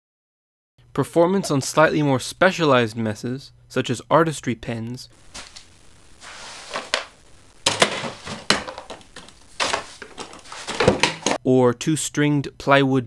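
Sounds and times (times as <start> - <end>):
broom sweeping carpet: 6.2 - 7.0, 9.7 - 10.9
pens knocking: 6.8 - 11.4.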